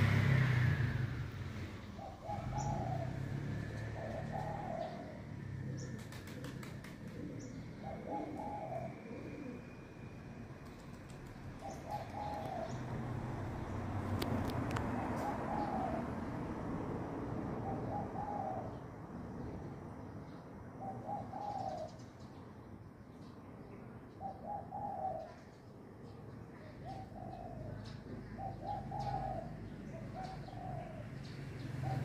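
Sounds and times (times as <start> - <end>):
dove cooing: 1.9 - 13.5, 14.2 - 16.3, 17.6 - 19.5, 20.8 - 22.3, 24.1 - 32.0.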